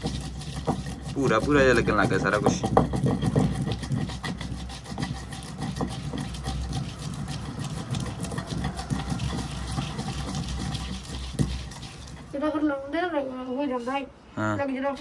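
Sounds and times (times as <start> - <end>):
pestle grinding knocks: 0.0 - 12.3.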